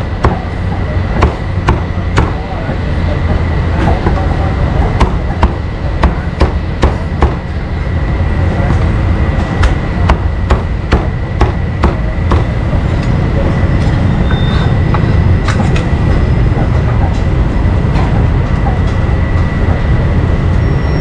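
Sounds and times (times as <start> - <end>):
steady low rumble: 0.0 - 20.9
cleaver chopping meat: 1.2 - 2.4, 10.1 - 12.5.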